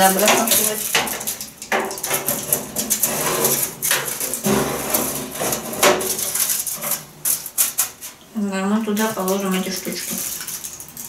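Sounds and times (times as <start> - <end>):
toaster oven door and tray clatter: 0.0 - 8.1.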